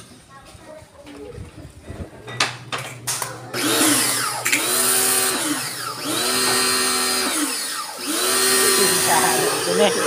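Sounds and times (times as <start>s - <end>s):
pressure washer motor hum: 3.5s - 10.0s.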